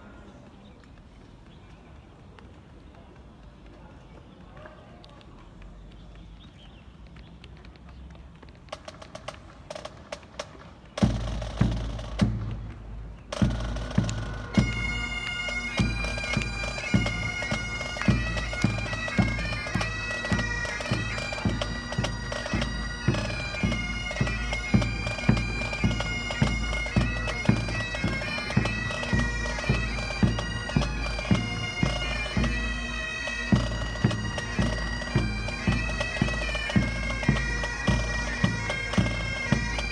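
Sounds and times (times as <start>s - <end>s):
drums beating: 11.0s - 39.9s
bagpipes playing a tune: 13.4s - 39.9s.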